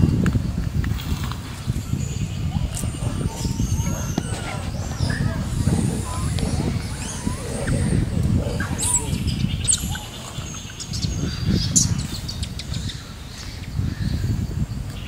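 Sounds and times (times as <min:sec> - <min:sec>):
low rumble: 0:00.9 - 0:10.2
birds chirping: 0:01.1 - 0:15.0.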